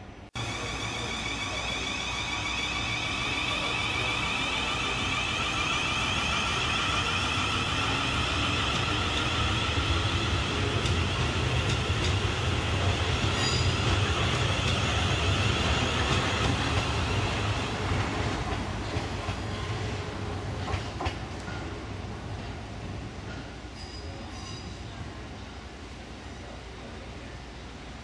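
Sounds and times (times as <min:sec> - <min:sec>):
train rolling rumble: 0:00.0 - 0:28.0
electric train whine: 0:00.4 - 0:20.3.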